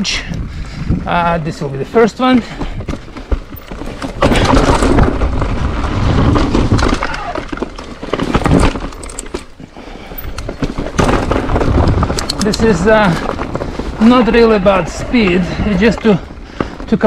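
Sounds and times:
bike rattling: 0.0 - 17.0
sharp knocks from stones: 6.2 - 9.4.

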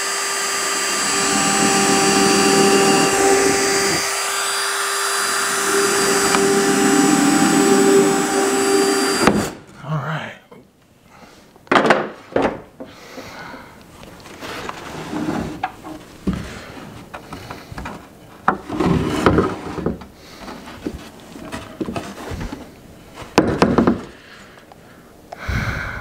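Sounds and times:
wood scraping and rubbing: 0.7 - 9.6, 14.1 - 22.8
wooden boards knocking: 23.4 - 24.1.

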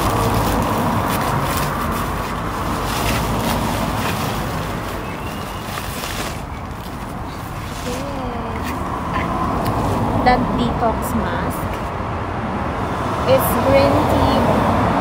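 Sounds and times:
bubble wrap crinkling: 0.0 - 9.9
outdoor background rumble: 0.0 - 15.0.

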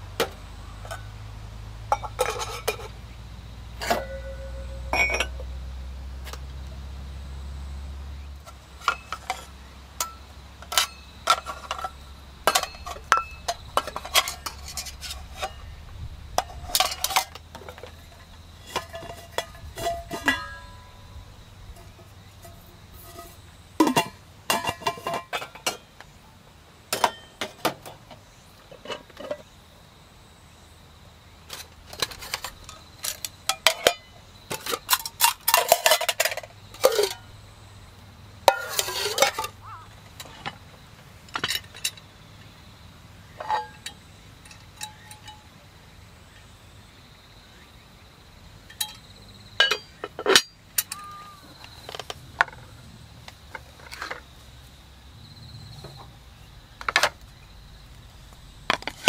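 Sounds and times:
metal pots clinking: 1.9 - 3.0, 3.8 - 5.6, 8.4 - 26.0, 26.9 - 28.0, 31.5 - 37.4, 38.4 - 40.6, 43.3 - 45.6, 48.7 - 51.3.

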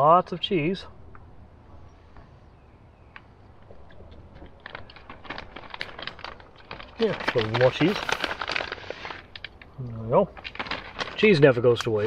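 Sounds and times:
small crisp crackles: 3.1 - 12.0
plastic bag crinkling: 3.7 - 12.0.

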